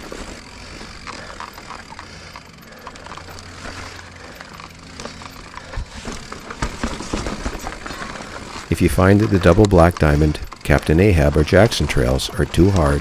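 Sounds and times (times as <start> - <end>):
bike clicks and rattles: 0.0 - 13.0
bike tyres crunching on grit: 0.0 - 13.0.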